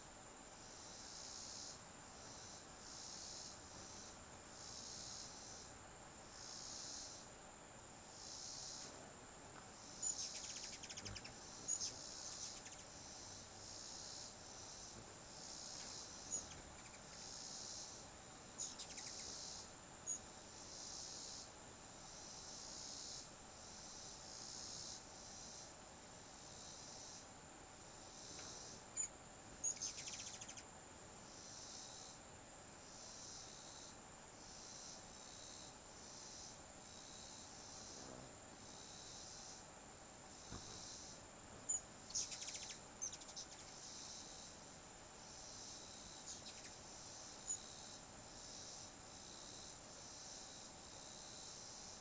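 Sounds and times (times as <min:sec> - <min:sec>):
pulsing insect chorus: 0:00.0 - 0:52.0.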